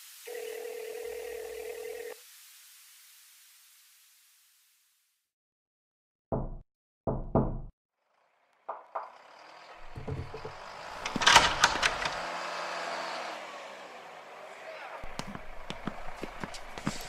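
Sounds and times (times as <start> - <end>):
noise: 0.0 - 5.3
knocking on door: 6.4 - 7.7, 9.9 - 10.6
clicks: 9.9 - 12.2
sharp clatters: 9.9 - 12.2.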